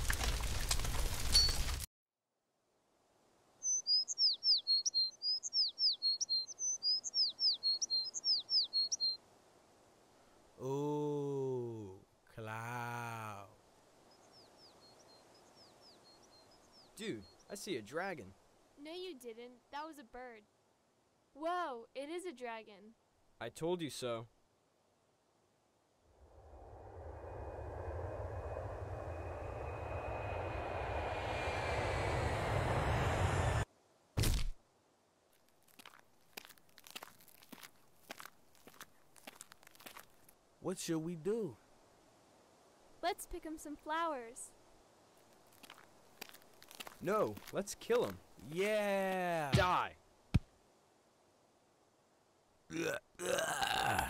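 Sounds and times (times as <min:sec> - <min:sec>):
songbird singing: 0:03.6 - 0:09.2, 0:13.6 - 0:19.2
deep rumble with rushing noise: 0:26.2 - 0:33.7
faint high whine: 0:26.2 - 0:33.7.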